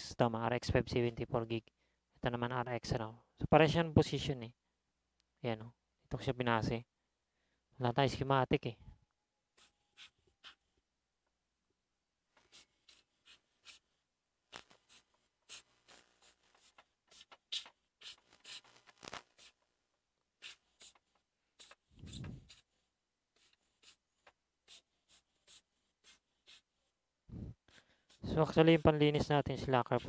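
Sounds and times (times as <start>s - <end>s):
tools clicking and scratching: 14.5s - 19.6s.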